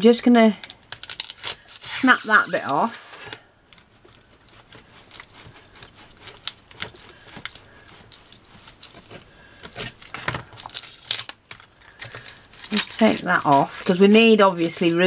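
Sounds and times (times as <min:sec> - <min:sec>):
knife cutting foam crackling: 0:01.0 - 0:15.0.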